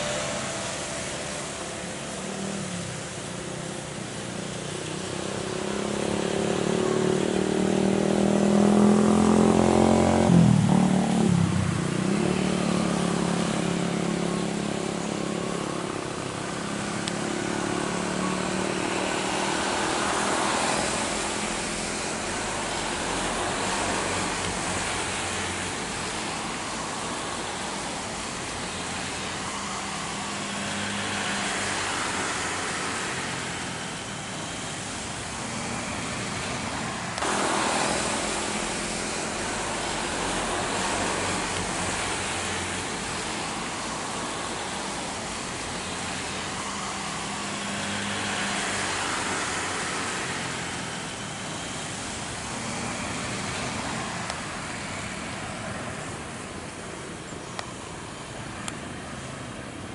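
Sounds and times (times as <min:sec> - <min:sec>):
jet engine whine: 0:00.0 - 0:59.9
rushing jet noise: 0:10.2 - 0:56.8.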